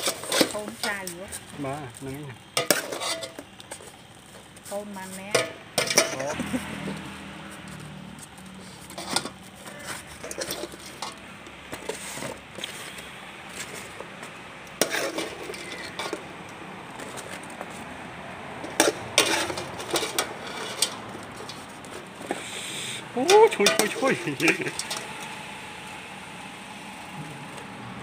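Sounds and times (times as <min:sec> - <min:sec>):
skimmer scraping metal pot: 0:00.0 - 0:01.6, 0:02.3 - 0:14.0, 0:14.8 - 0:16.3, 0:18.6 - 0:25.4.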